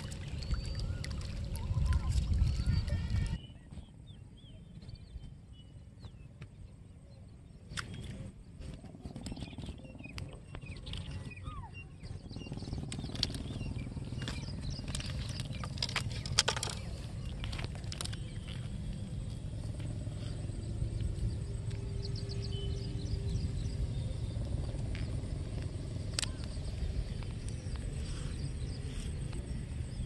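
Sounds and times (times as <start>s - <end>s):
low rumble: 7.8s - 30.0s
clicks and knocks on rocks: 12.9s - 19.0s.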